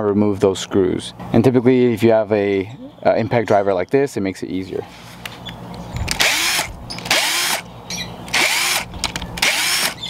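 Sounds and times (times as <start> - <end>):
cordless driver spinning screws: 6.0 - 7.6, 8.3 - 10.0.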